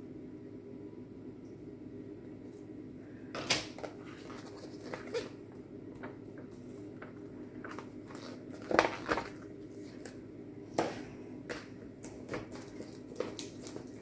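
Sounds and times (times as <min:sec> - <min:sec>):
steady low hum: 0:00.0 - 0:14.0
plastic rustling: 0:03.8 - 0:05.4, 0:06.0 - 0:10.2, 0:12.1 - 0:14.0.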